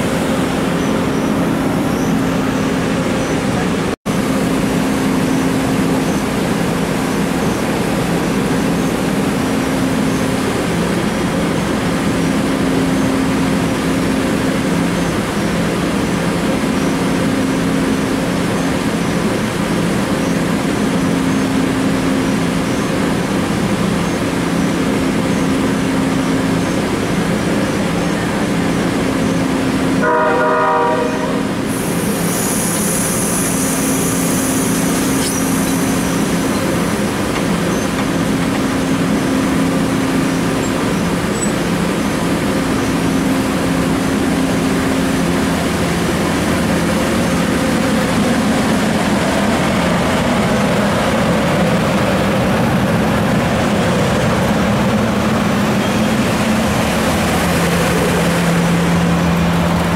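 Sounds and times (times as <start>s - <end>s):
train engine hum: 0.0s - 59.9s
train horn blast: 30.0s - 31.6s
high hiss: 31.7s - 36.5s.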